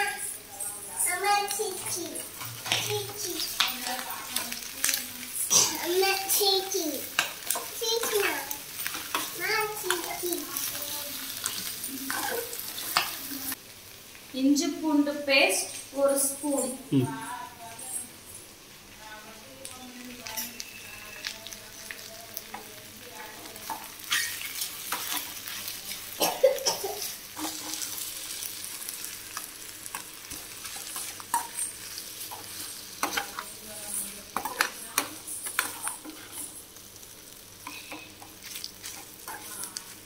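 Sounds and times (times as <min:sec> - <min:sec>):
meat sizzling in oil: 0:00.0 - 0:14.7, 0:19.6 - 0:40.0.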